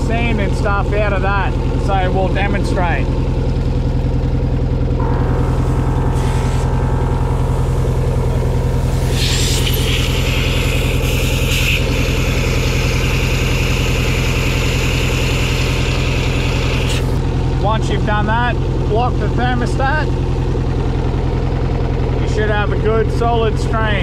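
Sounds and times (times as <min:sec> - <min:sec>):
outboard motor idling: 0:00.0 - 0:24.0
compressed air hissing: 0:06.1 - 0:06.8, 0:08.7 - 0:17.2.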